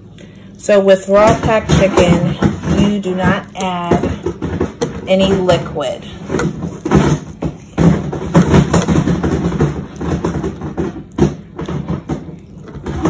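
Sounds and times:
person speaking: 0.6s - 4.4s, 5.0s - 6.3s
sharp knocks: 1.2s - 13.0s.

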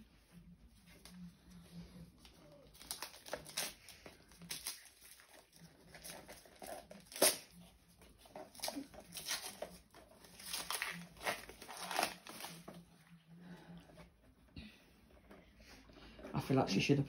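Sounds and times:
wrapping paper rustling: 0.0s - 13.2s.

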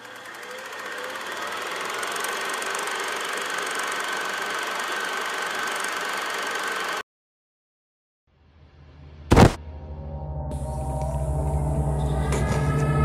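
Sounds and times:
film projector whirring: 0.0s - 7.0s.

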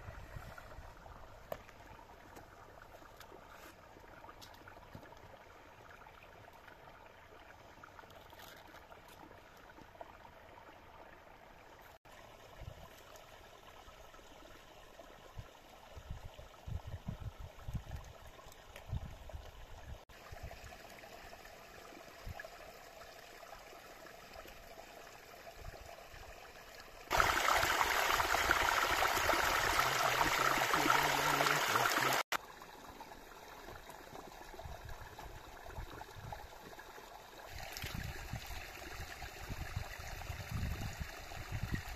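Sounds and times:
running water rushing: 20.1s - 41.9s.

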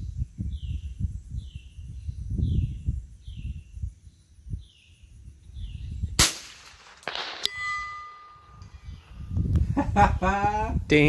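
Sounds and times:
rifle shot: 6.2s - 7.5s
bullet clanging on steel gong: 7.2s - 8.9s
gong ringing: 7.5s - 8.8s.

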